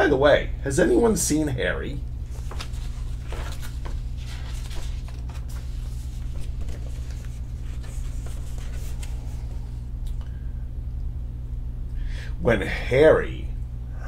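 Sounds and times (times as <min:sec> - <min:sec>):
steady low hum: 0:00.0 - 0:14.0
paper pages turning: 0:02.2 - 0:09.8.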